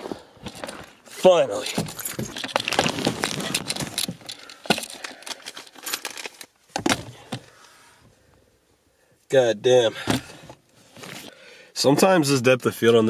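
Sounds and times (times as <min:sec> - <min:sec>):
clothing and camera rustling: 0:00.0 - 0:07.5, 0:10.1 - 0:11.3.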